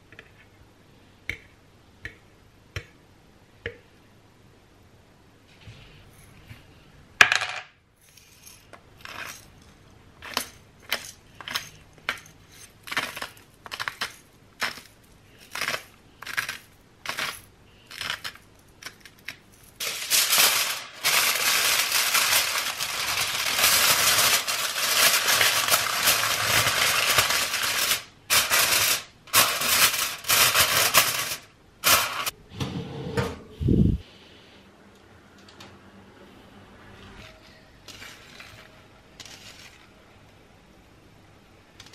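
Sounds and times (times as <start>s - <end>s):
aluminium foil crinkling: 12.5s - 32.3s, 37.9s - 40.0s.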